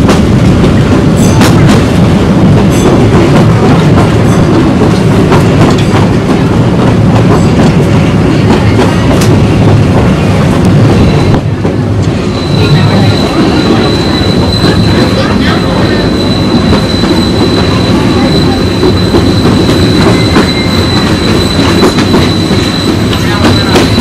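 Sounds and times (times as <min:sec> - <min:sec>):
train wheels rumbling on rail: 0:00.0 - 0:24.0
high-pitched wheel squeal: 0:12.2 - 0:24.0.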